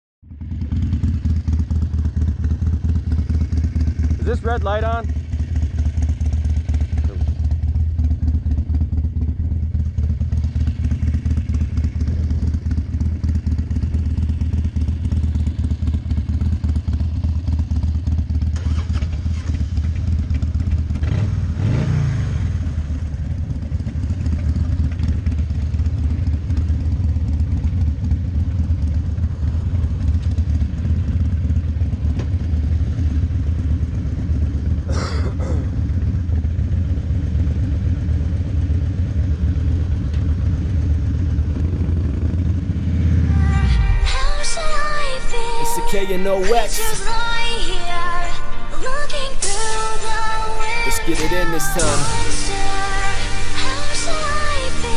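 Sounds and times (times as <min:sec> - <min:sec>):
motorcycle engine idling: 0:00.2 - 0:21.2, 0:22.5 - 0:42.9.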